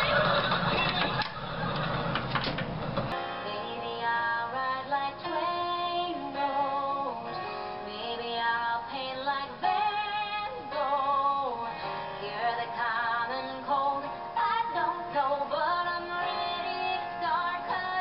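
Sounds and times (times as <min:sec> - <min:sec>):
loud noisy room sound: 0:00.0 - 0:03.2
young women singing together: 0:03.5 - 0:18.0.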